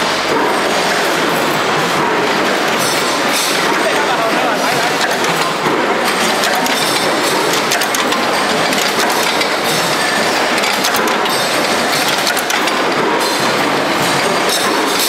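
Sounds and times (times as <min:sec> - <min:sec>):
continuous machine din: 0:00.0 - 0:15.0
mechanical punch presses stamping: 0:04.8 - 0:15.0.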